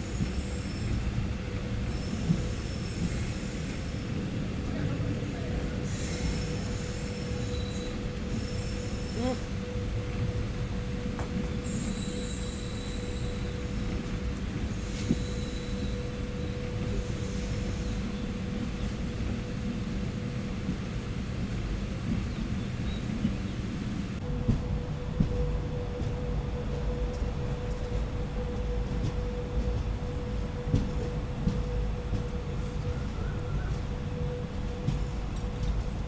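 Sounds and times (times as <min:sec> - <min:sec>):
train wheels rumbling: 0:00.0 - 0:36.0
constant hum: 0:18.0 - 0:36.0.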